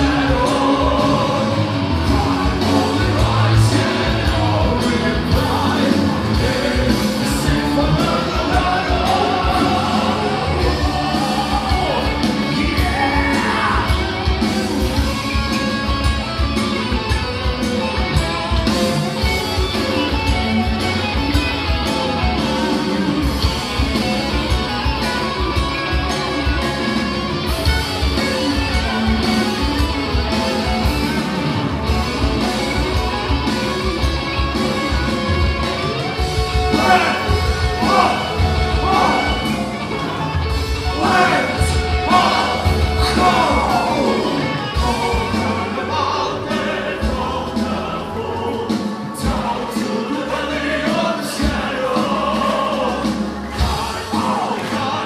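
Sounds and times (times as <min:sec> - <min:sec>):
person singing: 0:00.0 - 0:14.5, 0:36.6 - 0:55.0
driving drum beat: 0:00.0 - 0:55.0
electric guitars: 0:00.0 - 0:55.0
keyboards: 0:00.0 - 0:55.0.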